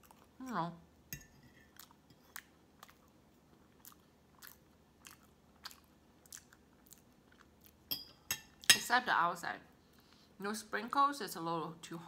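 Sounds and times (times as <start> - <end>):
chewing cake: 1.6 - 7.9.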